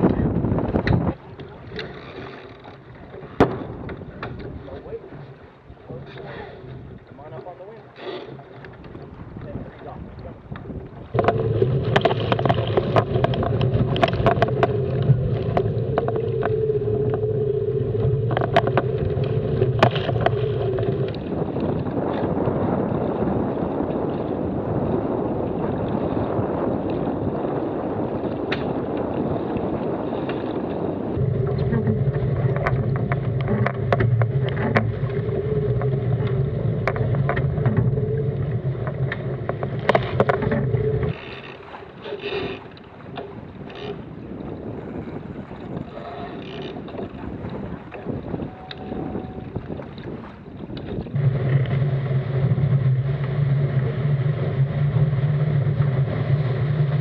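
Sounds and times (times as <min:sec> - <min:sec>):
water and wind rushing: 0:00.0 - 0:57.0
steady low hum: 0:11.1 - 0:21.6, 0:31.0 - 0:41.2, 0:51.1 - 0:57.0.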